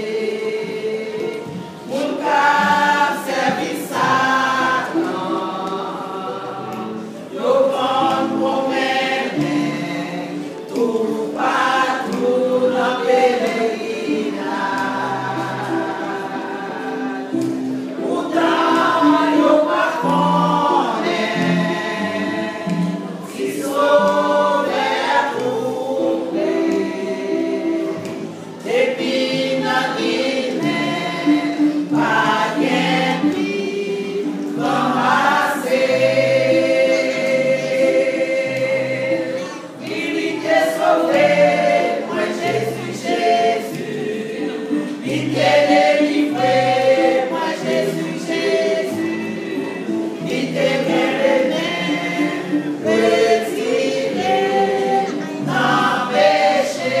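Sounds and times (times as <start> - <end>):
women's choir singing a hymn: 0.0 - 57.0.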